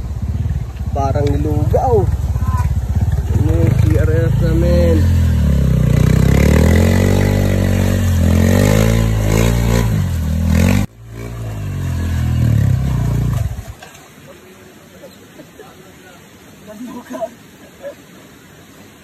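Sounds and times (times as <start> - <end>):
dirt bike engine revving: 0.0 - 13.8.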